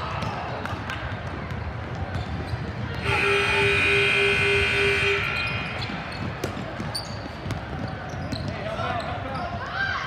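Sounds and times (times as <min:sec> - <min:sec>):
scoreboard horn buzzing: 0:03.0 - 0:06.4.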